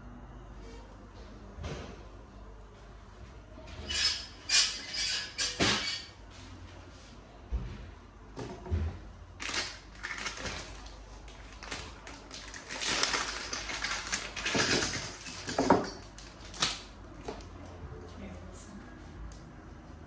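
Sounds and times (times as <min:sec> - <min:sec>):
plastic pouch crinkling: 0:09.4 - 0:14.6.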